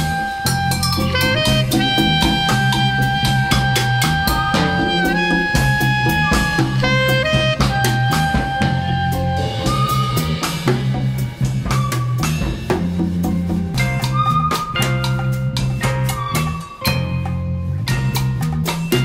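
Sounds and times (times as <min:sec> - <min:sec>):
long held melodic notes: 0:00.0 - 0:10.7
bass line: 0:00.0 - 0:19.0
drum kit beat: 0:00.0 - 0:19.0.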